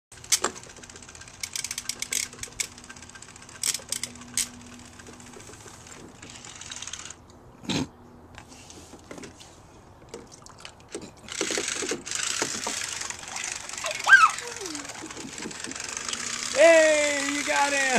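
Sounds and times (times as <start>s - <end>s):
plastic toys clicking and clattering: 0.2s - 7.2s, 10.9s - 17.9s.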